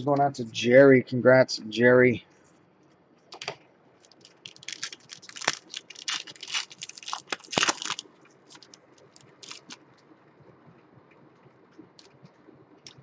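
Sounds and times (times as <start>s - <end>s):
foil pack tearing and crinkling: 4.0s - 9.8s
sharp foil snaps: 4.0s - 9.8s.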